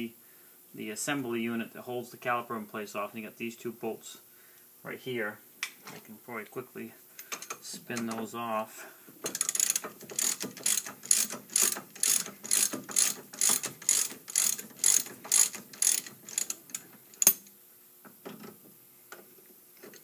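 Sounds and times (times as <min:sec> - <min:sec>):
ratchet pawl clicking: 0:09.2 - 0:17.4.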